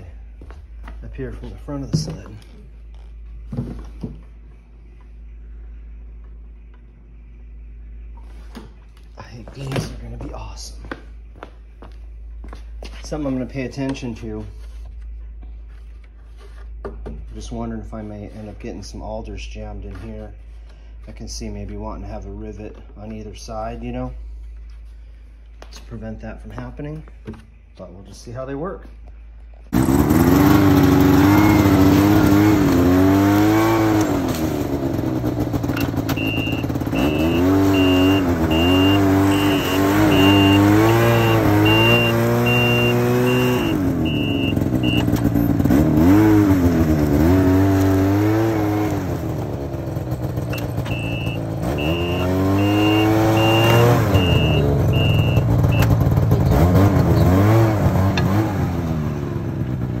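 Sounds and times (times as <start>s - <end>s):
snowmobile engine revving: 29.8s - 49.6s, 50.2s - 59.9s
high electronic beeper: 36.1s - 45.1s, 50.6s - 55.9s.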